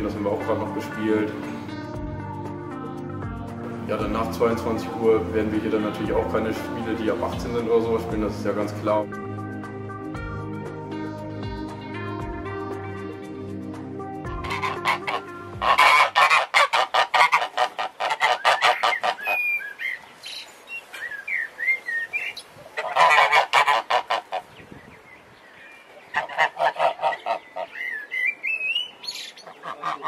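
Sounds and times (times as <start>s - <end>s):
geese honking: 14.3s - 19.8s, 22.8s - 24.5s, 26.1s - 28.2s, 29.4s - 30.0s
high chirping calls: 18.2s - 23.0s, 24.3s - 30.0s.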